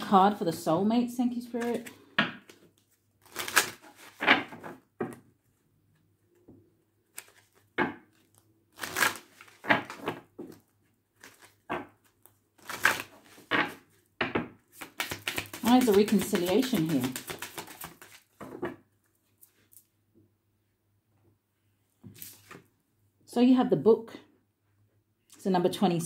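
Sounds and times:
cards being shuffled: 1.4 - 4.8, 7.0 - 13.9, 14.7 - 18.6, 22.1 - 22.6.

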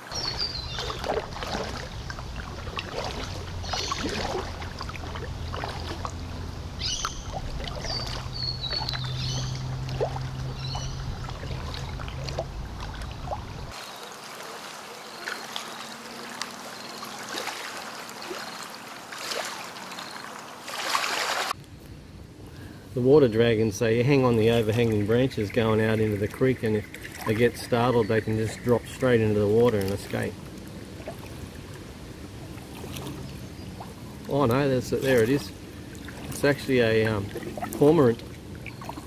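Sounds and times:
kayak paddle splashing: 0.0 - 21.6, 24.3 - 39.0
bird chirping: 0.1 - 1.1, 6.8 - 12.1
low steady hum: 0.1 - 13.8
water dripping off paddle: 0.1 - 13.8, 32.8 - 39.0.

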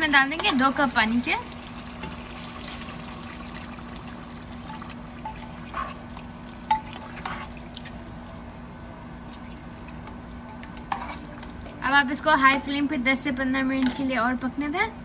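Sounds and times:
water poured into pot: 1.5 - 8.0.

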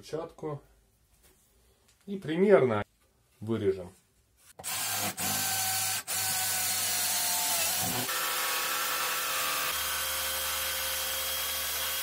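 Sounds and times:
jigsaw cutting acrylic: 4.6 - 12.0.

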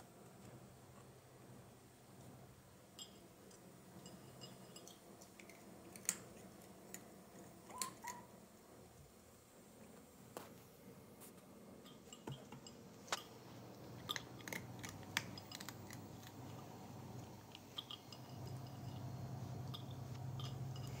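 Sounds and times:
low steady hum: 0.0 - 21.0
cats crunching dry kibble: 4.9 - 8.2, 13.0 - 21.0.

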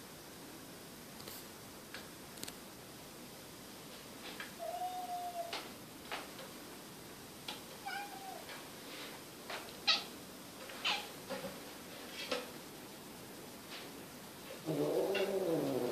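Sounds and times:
cat meowing: 4.6 - 5.6, 7.8 - 8.5.

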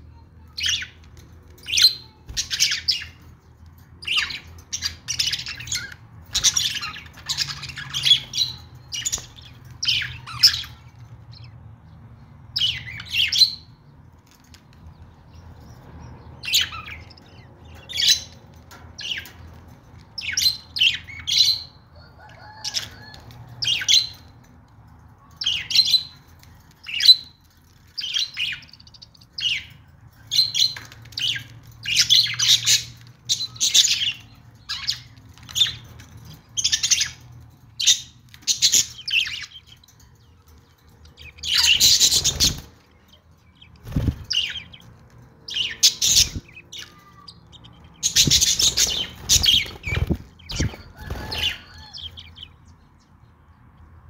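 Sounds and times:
budgerigars chirping: 37.8 - 39.9, 41.2 - 42.8, 43.6 - 52.6.

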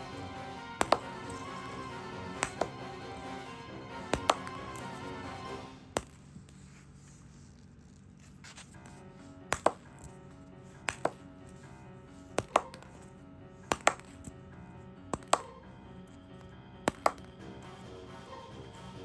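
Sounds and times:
table tennis ball bouncing: 0.0 - 5.2, 5.8 - 6.3, 8.9 - 14.4, 15.1 - 15.7, 16.4 - 17.7
quiet background music: 0.0 - 19.0.

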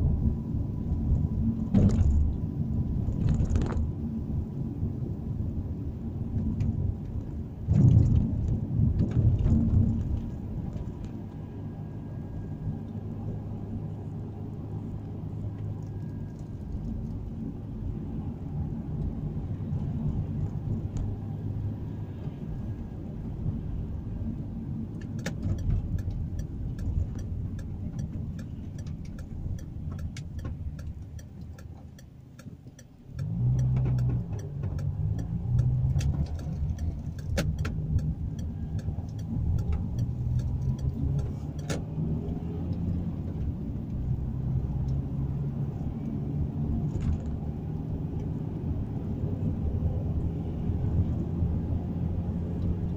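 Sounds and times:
car engine and road noise: 0.0 - 52.9
regular ticks: 25.0 - 41.8.

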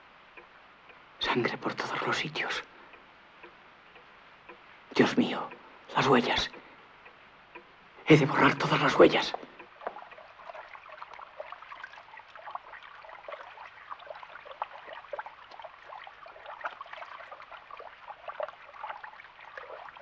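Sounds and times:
tap water splashing on hands: 9.3 - 20.0.

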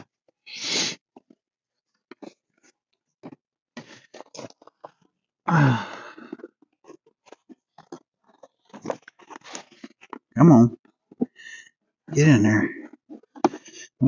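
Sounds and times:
low grunt: 5.5 - 6.4
wire and carpet crackling: 6.3 - 10.4.

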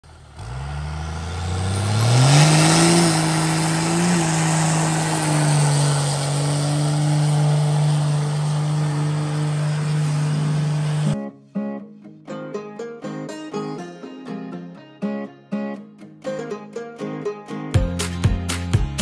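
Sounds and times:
car engine revving hard: 0.0 - 11.2
spinning tyres hissing: 0.0 - 11.2.

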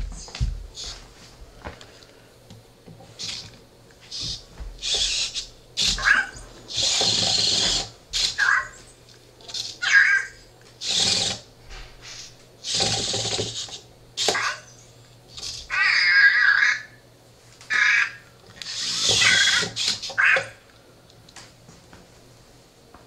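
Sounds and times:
toy robot motors whirring: 3.2 - 11.5, 12.1 - 14.7, 15.3 - 16.8, 17.7 - 20.6.

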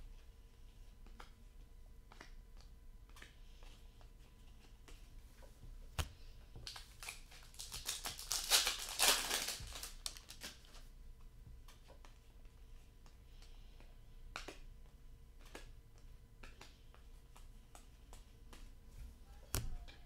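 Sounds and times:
cards crackling and rustling: 6.6 - 10.8.

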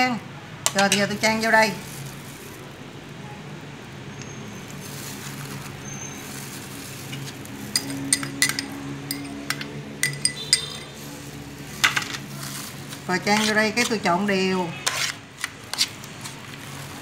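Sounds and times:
ceramic bowl clinking on steel: 7.7 - 11.0.

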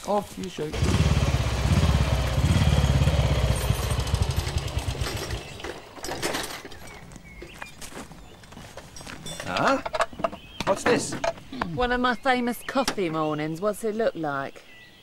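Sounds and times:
motorcycle engine running: 0.7 - 5.8.

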